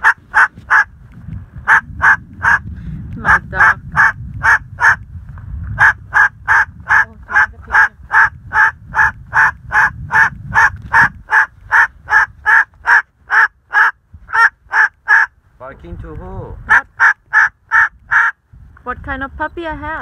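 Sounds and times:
cockatoo barking like a dog: 0.0 - 0.9, 1.6 - 2.6, 3.3 - 5.0, 5.8 - 15.3, 16.7 - 18.4.

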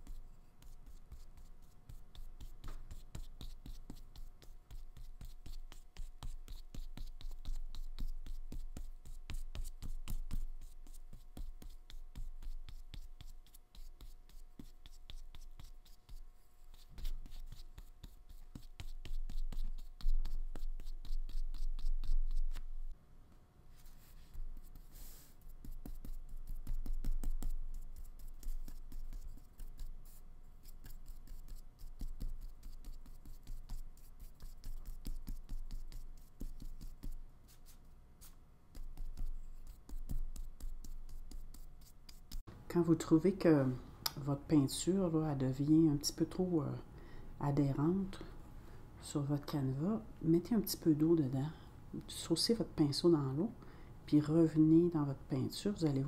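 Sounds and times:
paintbrush scratching on paper: 0.0 - 22.8, 23.7 - 42.5
faint steady hum: 0.0 - 56.0.

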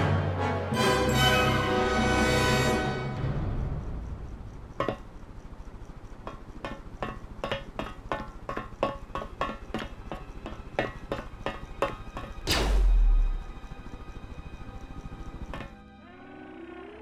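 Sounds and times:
footsteps clanking on metal floor: 4.8 - 5.1, 6.2 - 12.5.

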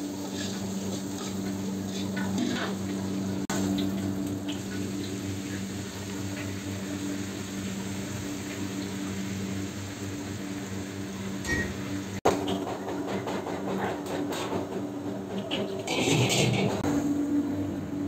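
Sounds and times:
vegetables sizzling in a wok: 0.0 - 12.2
constant low hum: 0.0 - 18.0.

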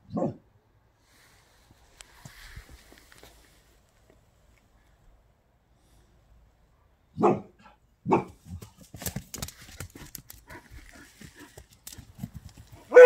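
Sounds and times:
dogs barking: 7.2 - 8.4, 12.8 - 13.0.

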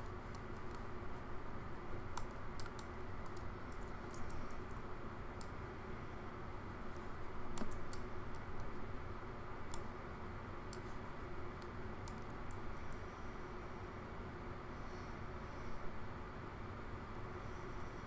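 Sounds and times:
low background hum: 0.0 - 18.0
keyboard and mouse clicks: 2.2 - 4.8, 7.5 - 8.7.

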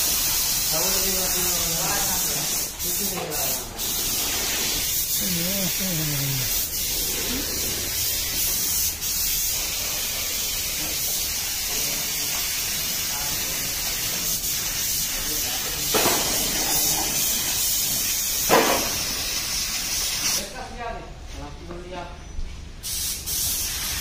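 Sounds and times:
paint spray gun hissing: 6.5 - 15.1.

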